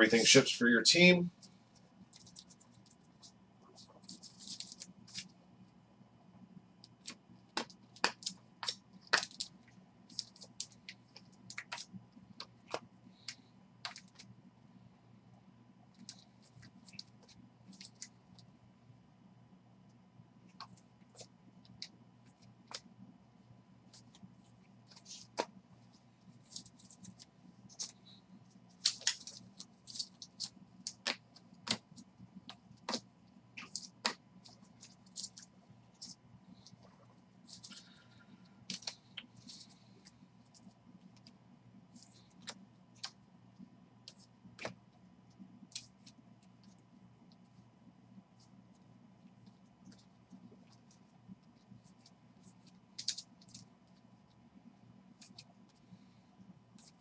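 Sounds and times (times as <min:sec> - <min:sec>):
cards clicking and rustling: 0:03.8 - 0:05.3, 0:06.9 - 0:14.3, 0:24.8 - 0:25.6, 0:26.4 - 0:36.8, 0:38.6 - 0:41.3, 0:52.6 - 0:53.7, 0:55.2 - 0:55.5.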